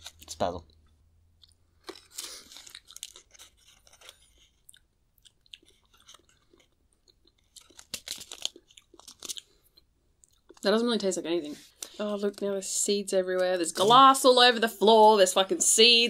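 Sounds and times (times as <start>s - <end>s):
person chewing crunchy seeds: 1.4s - 10.7s.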